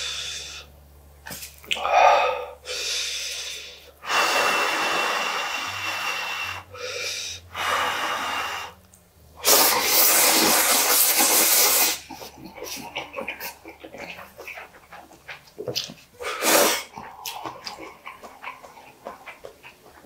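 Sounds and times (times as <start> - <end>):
mouth sounds: 1.3 - 8.7, 9.4 - 20.0
noodle slurping: 9.4 - 20.0.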